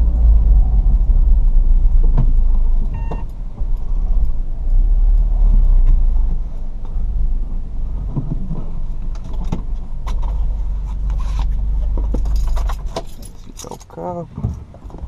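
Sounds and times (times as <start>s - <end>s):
car engine running: 0.0s - 15.0s
clicks and knocks from controls: 0.1s - 4.4s, 8.0s - 15.0s.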